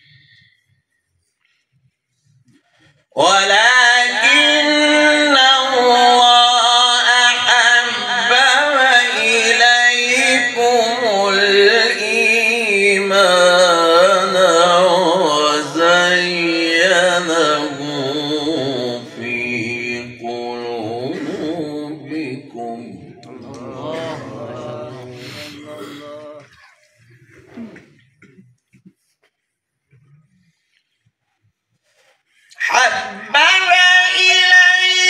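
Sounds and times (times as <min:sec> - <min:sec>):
man chanting melodically: 0:03.2 - 0:26.7, 0:32.5 - 0:35.0.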